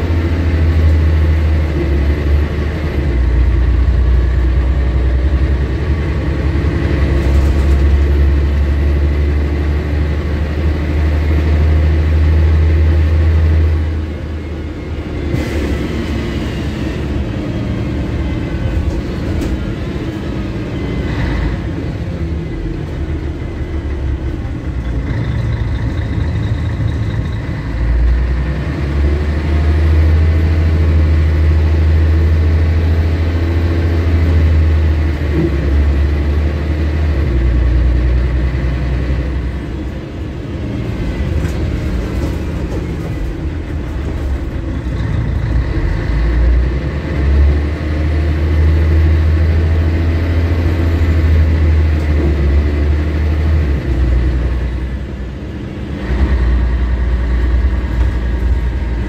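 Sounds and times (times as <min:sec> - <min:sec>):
bus diesel engine: 0:00.0 - 0:59.0.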